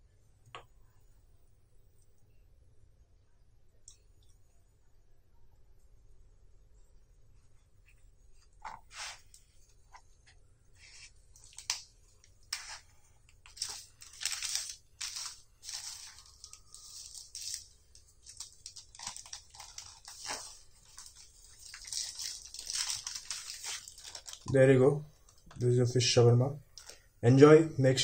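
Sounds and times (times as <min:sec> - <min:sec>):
paper and flatbread rustling: 0:08.4 - 0:10.0, 0:10.8 - 0:25.5.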